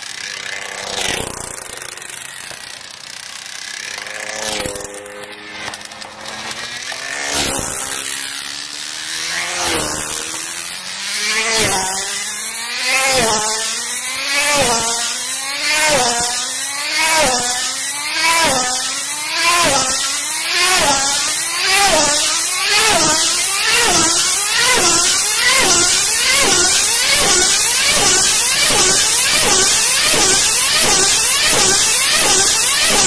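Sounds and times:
model car engine whining past: 0.0 - 33.0.

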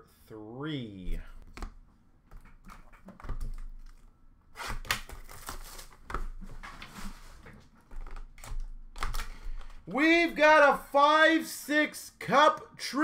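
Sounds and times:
cardboard and wrapping ripping: 4.6 - 6.1.

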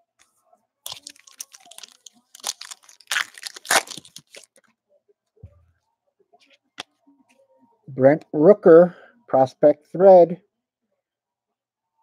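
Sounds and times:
foil wrapper tearing and crinkling: 0.9 - 4.6.

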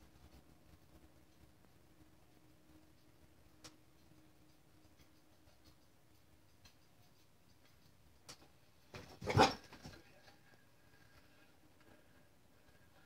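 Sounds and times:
faint clicks: 2.8 - 8.6.

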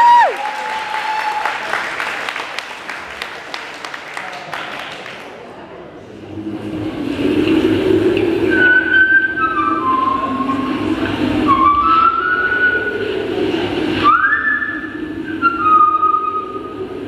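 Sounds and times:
whistled melody over loudspeakers: 8.5 - 13.2, 13.9 - 16.8.

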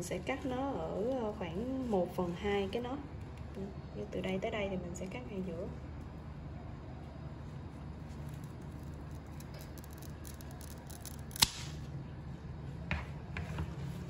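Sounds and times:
scissors snipping stem: 9.1 - 11.8.

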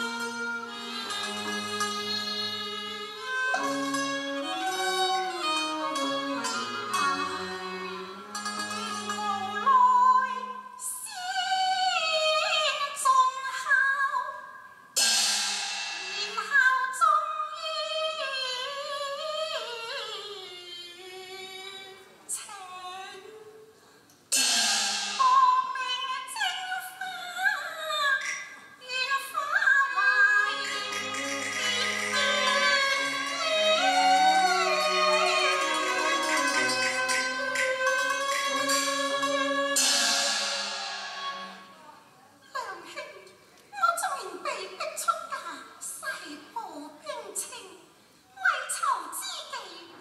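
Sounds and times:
instrumental accompaniment: 0.0 - 10.5, 24.3 - 25.7, 29.9 - 42.1
woman singing opera: 8.8 - 14.5, 16.4 - 23.7, 25.2 - 40.2.

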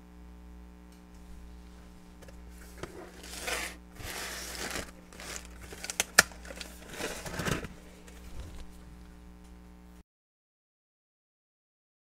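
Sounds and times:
tissue paper rustling: 1.3 - 9.1.

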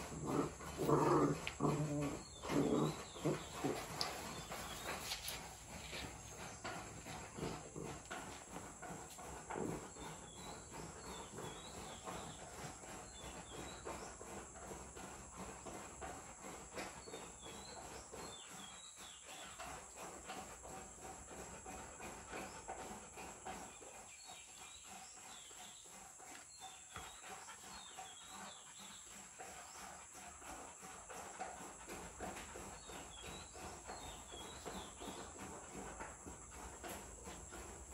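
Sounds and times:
dogs scuffing on concrete floor: 0.0 - 12.3.

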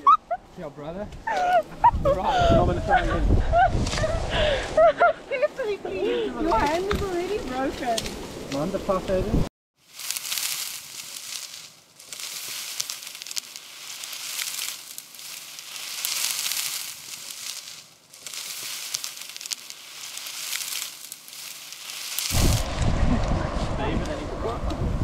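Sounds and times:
dry reeds rustling and crackling: 3.8 - 24.8
reed stems snapping: 9.9 - 23.4.

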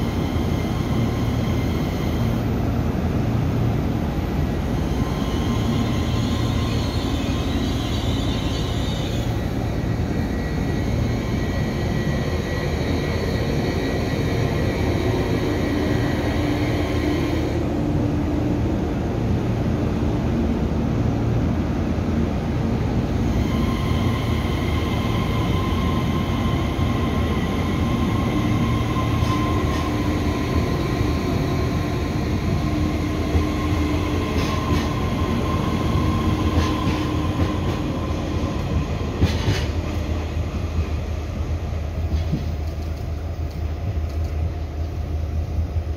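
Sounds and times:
train electric whine: 0.0 - 19.6, 22.8 - 45.9
wheels rumbling on rails: 23.6 - 41.2.

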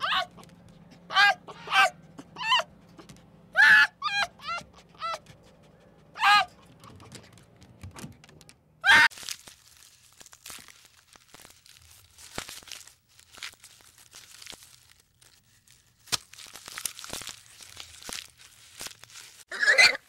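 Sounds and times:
loud animal call: 1.1 - 2.7, 3.5 - 5.2
crackling and crunching: 6.6 - 19.5.

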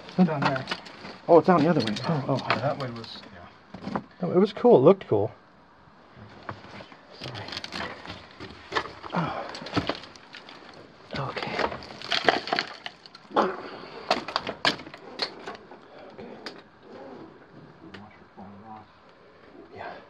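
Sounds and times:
stones clicking and cracking: 7.2 - 13.3.

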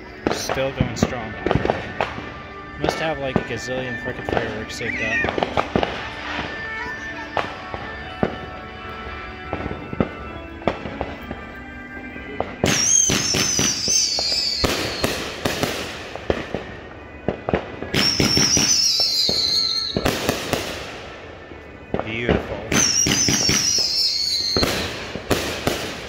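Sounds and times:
firework pops and cracks: 0.2 - 3.0, 4.2 - 8.5, 12.4 - 16.7, 17.3 - 20.9, 21.9 - 26.0
loud firework bangs: 0.2 - 3.6, 4.2 - 8.6, 9.5 - 11.4, 12.4 - 26.0
firework whistles sliding down: 12.7 - 15.2, 22.8 - 25.0.

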